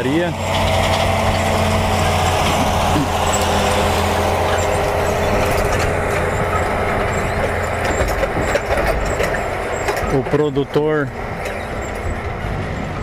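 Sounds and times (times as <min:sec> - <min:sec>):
diesel engine running steadily: 0:00.0 - 0:13.0.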